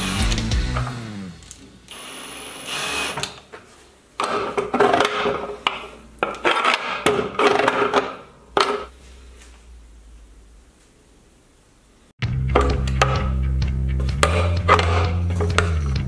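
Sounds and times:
cordless drill running: 0:00.0 - 0:01.3, 0:01.9 - 0:03.3.

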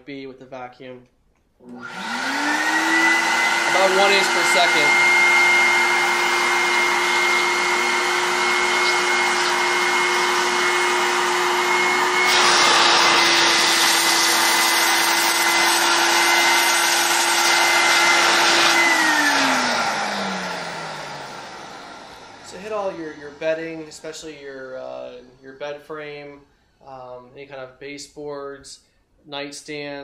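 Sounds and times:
vacuum motor sucking air: 0:01.7 - 0:24.4.

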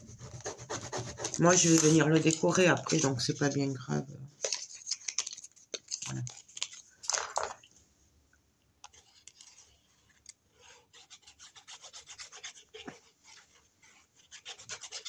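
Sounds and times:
hands rubbing paper: 0:00.0 - 0:03.6.

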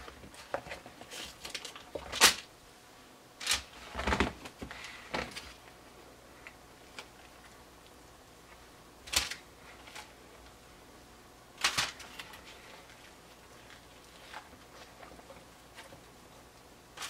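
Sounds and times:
kitchen handling noises: 0:11.6 - 0:16.1.

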